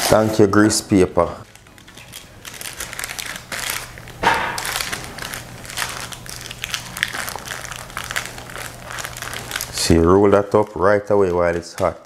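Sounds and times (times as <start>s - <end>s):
cloth and paper crinkling: 0.0s - 12.0s.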